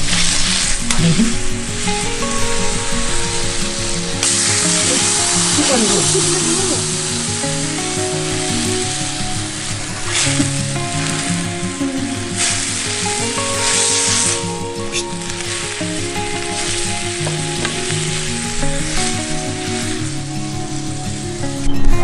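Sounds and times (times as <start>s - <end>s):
food sizzling in hot oil: 0.0s - 21.4s
background music plucked melody: 0.0s - 22.0s.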